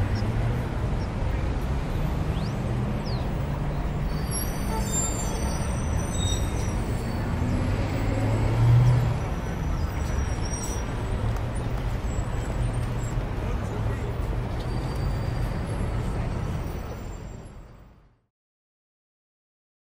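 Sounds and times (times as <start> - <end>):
road traffic rumble: 0.0 - 18.2
vehicle passing: 6.8 - 10.0.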